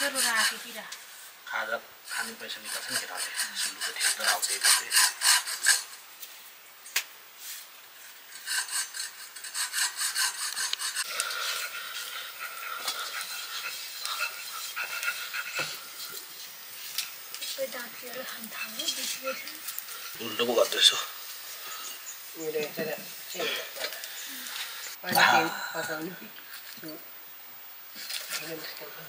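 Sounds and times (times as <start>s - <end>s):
rhythmic scraping strokes: 2.1s - 6.0s, 8.0s - 25.0s.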